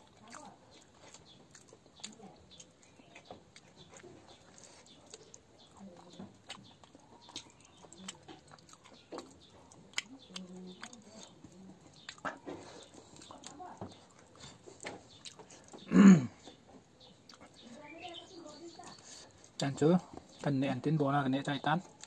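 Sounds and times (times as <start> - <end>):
fingers squishing wet rice: 0.0 - 15.8
chewing and lip smacks: 0.0 - 20.5.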